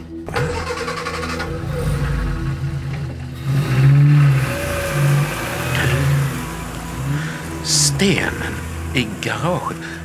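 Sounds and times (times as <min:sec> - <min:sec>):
small car engine revving: 0:00.2 - 0:10.0.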